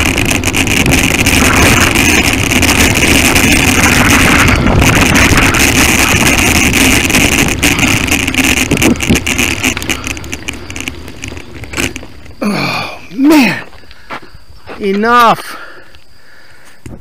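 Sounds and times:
wind rushing over microphone: 0.0 - 14.6
bicycle rolling over rough trail: 0.0 - 17.0
person grunting: 12.4 - 13.7.

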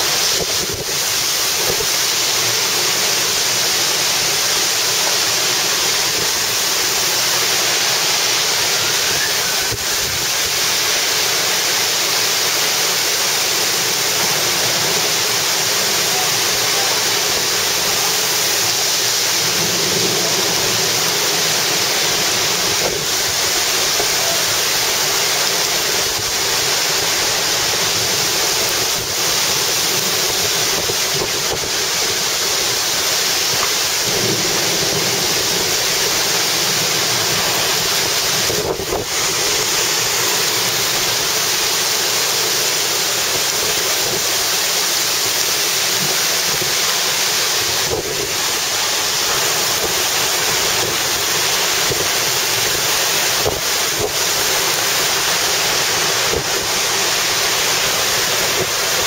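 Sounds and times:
heavy wind-driven rain: 0.0 - 59.0
strong gusting wind: 6.0 - 11.7, 13.4 - 41.6.

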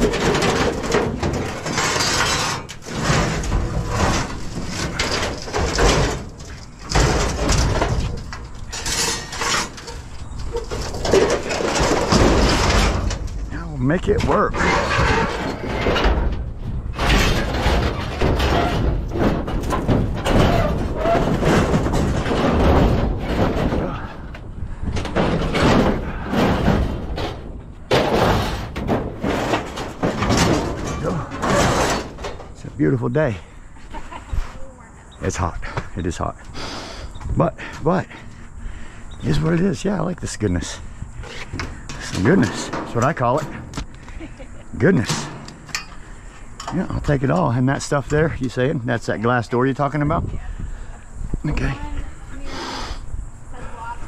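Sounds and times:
scrap metal scraping and clattering: 0.0 - 34.6, 36.5 - 50.6
metal bang: 25.0 - 32.7.

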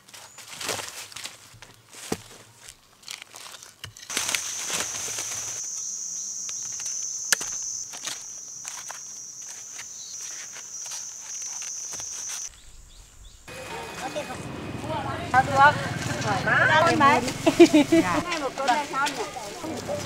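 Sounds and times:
high-pitched insect drone: 4.1 - 12.5.

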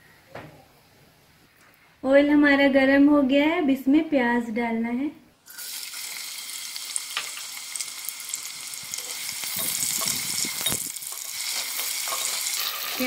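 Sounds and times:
onions sizzling in oil: 5.5 - 13.0
spatula scraping pot: 9.1 - 13.0.

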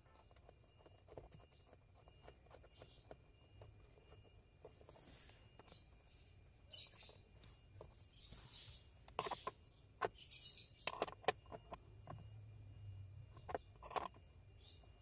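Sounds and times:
soft rustles: 4.2 - 5.6.

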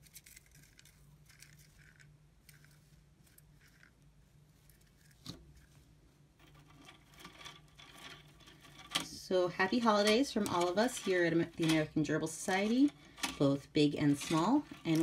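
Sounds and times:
gerbils rustling and nibbling: 0.0 - 9.0
low steady hum: 0.0 - 15.0.

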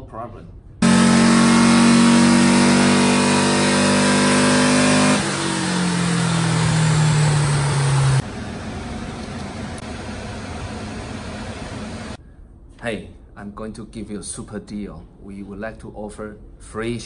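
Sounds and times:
car engine revving: 0.8 - 12.2.

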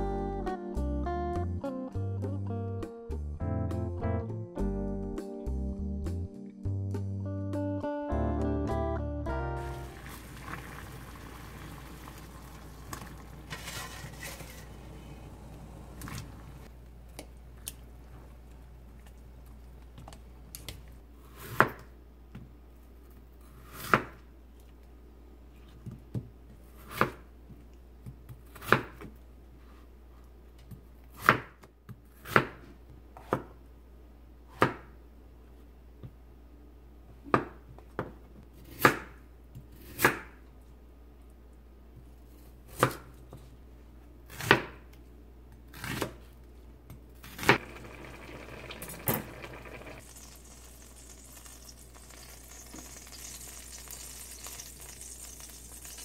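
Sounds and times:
butter sizzling in a pan: 9.7 - 14.9, 47.5 - 56.0.

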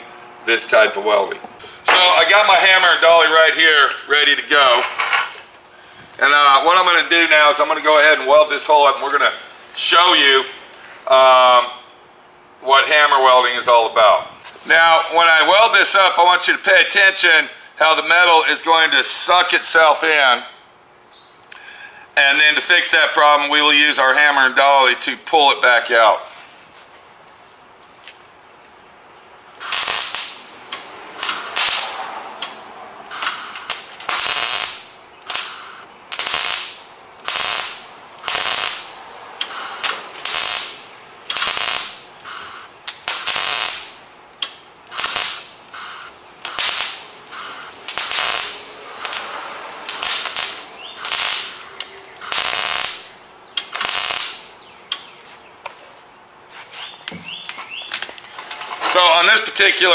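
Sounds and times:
welding arc crackling: 29.5 - 55.1.

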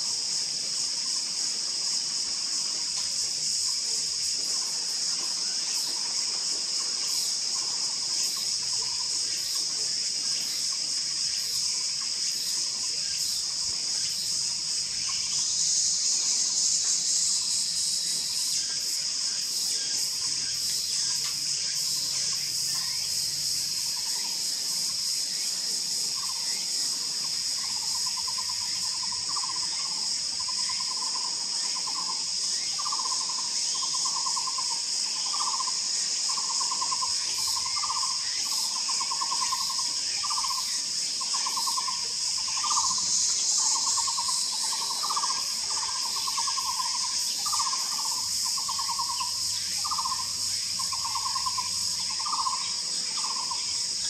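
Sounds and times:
high-pitched insect drone: 0.0 - 54.0
bird trilled calls: 43.8 - 53.6.

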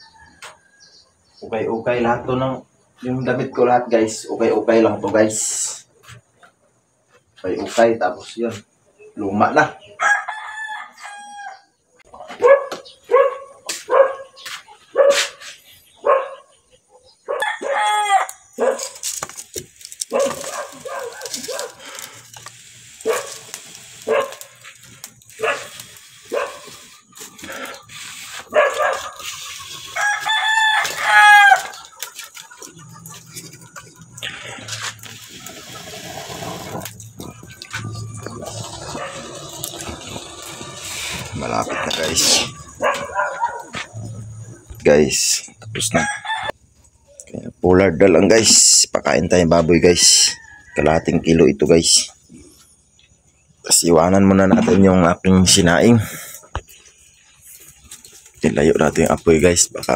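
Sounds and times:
rooster crowing: 0.0 - 1.0, 9.9 - 11.7, 17.3 - 18.5, 28.6 - 31.9, 45.8 - 46.6, 50.0 - 51.6
dog barking: 12.2 - 15.4, 16.0 - 18.0, 18.6 - 19.0, 20.1 - 21.8, 23.0 - 24.5, 25.4 - 26.7, 28.5 - 29.2, 41.6 - 44.2.

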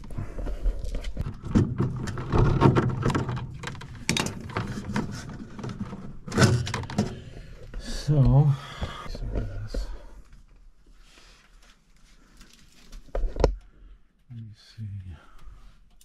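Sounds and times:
metal parts knocking and rattling: 1.2 - 7.2.

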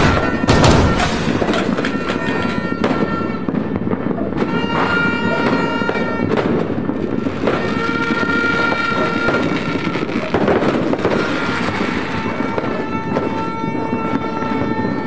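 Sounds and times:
long horn blasts: 0.0 - 3.8
firecrackers crackling and popping: 0.0 - 15.0.

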